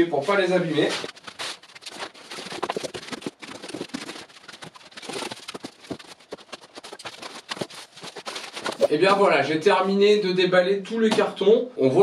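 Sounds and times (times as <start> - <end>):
cardboard rustling and crinkling: 0.3 - 8.9.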